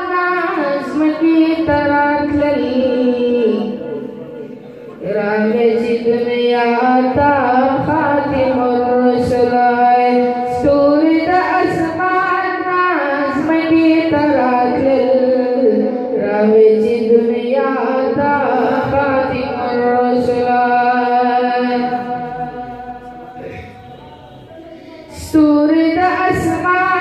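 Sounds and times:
man chanting melodic recitation: 21.1s - 25.1s.

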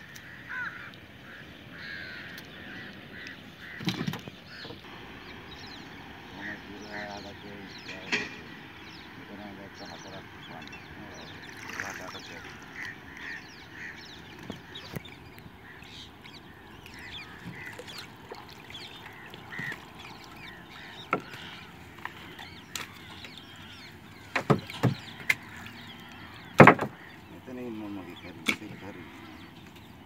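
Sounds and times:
bird calls: 0.0s - 30.0s
sharp knocks on a canoe: 3.8s - 4.8s, 20.8s - 23.3s, 24.3s - 25.6s, 26.4s - 27.1s.

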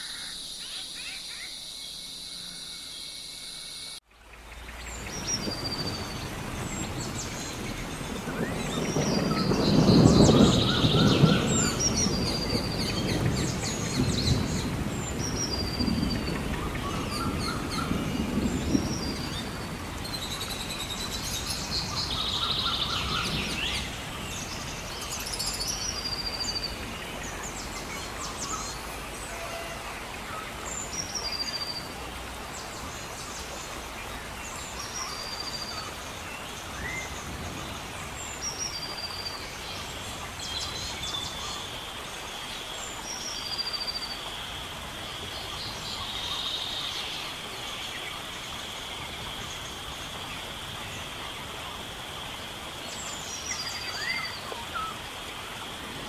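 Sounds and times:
birds chirping: 0.0s - 56.0s
rain hissing: 0.0s - 56.0s
rolling thunder rumbles: 5.0s - 25.1s.

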